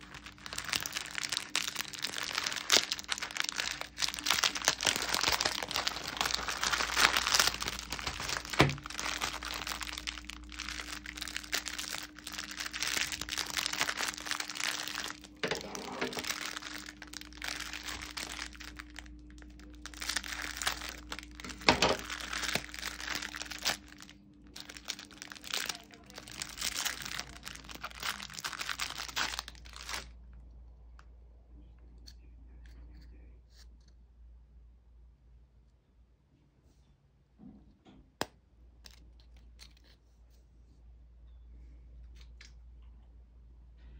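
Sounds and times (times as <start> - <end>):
scissors cutting plastic: 0.0 - 24.0
plastic wrapper crinkling and tearing: 0.0 - 30.4, 38.8 - 40.0.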